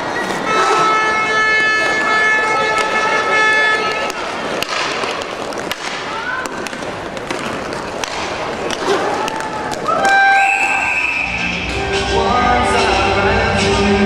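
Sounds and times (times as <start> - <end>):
clacks of sticks and puck: 1.9 - 10.3.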